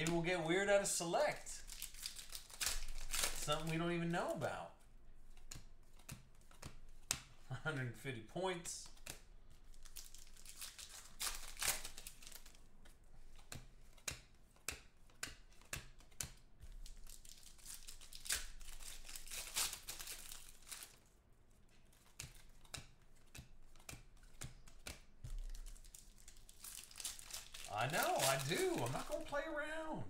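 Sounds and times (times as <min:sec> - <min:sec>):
cards rustling and clicking: 0:00.0 - 0:07.5, 0:08.6 - 0:29.9
foil wrapper crinkling and tearing: 0:01.3 - 0:04.0, 0:09.6 - 0:12.6, 0:16.7 - 0:21.1, 0:25.3 - 0:29.6.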